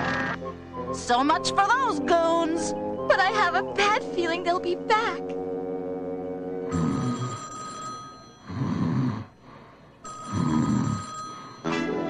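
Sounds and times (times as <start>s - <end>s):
man snoring: 6.7s - 7.4s, 8.4s - 9.4s, 10.3s - 11.9s
cartoon telephone bell ringing: 6.7s - 9.0s, 10.0s - 12.0s.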